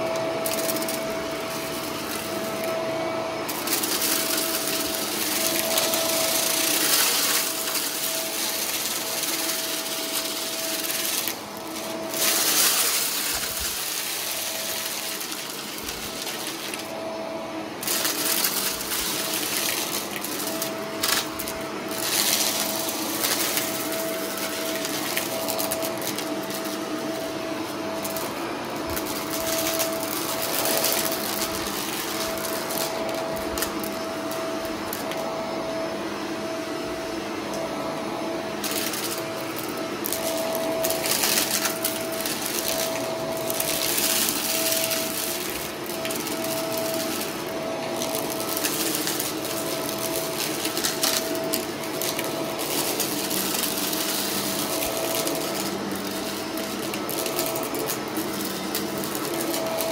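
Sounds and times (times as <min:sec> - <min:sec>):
vacuum cleaner running: 0:00.0 - 0:59.9.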